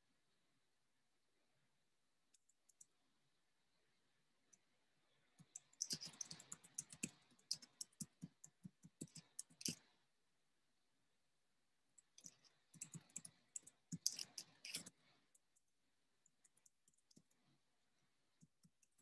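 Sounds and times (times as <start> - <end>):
typing on computer keyboard: 5.4 - 9.8, 12.1 - 14.9.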